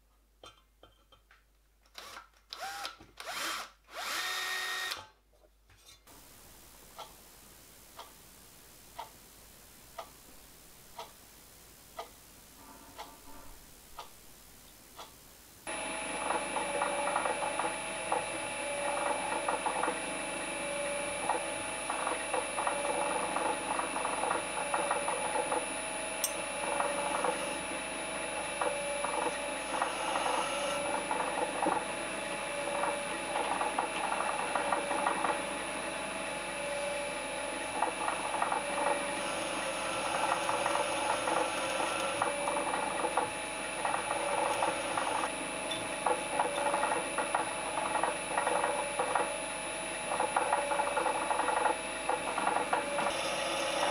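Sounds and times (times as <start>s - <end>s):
drill press motor whine: 1.9s - 5.1s, 15.7s - 53.9s
drill bit scratching into steel: 29.6s - 30.9s, 39.1s - 42.3s.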